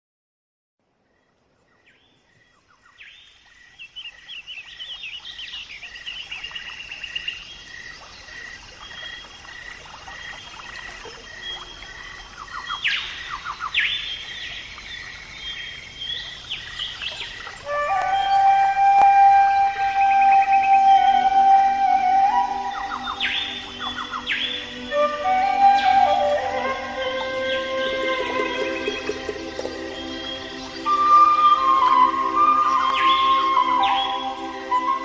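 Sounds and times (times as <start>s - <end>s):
birds chirping and trilling: 1.1s - 21.2s, 21.8s - 35.0s
music with held notes: 17.7s - 35.0s.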